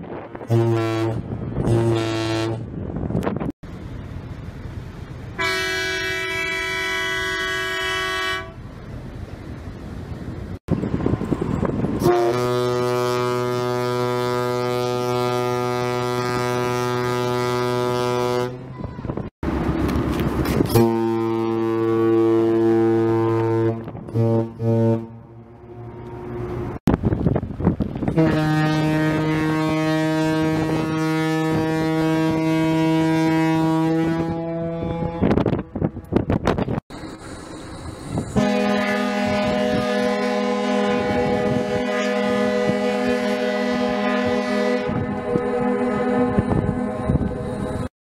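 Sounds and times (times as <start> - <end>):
wind noise on microphone: 0.0 - 4.1, 9.3 - 25.3, 25.9 - 47.9
ferry horn blast: 0.4 - 2.7, 5.4 - 8.6, 12.0 - 19.2, 20.5 - 26.7, 28.1 - 35.9, 38.3 - 47.6.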